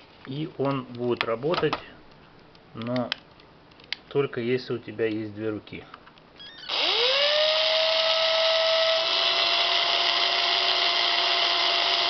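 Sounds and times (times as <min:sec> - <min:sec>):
cordless drill motor whining: 0:06.4 - 0:12.0.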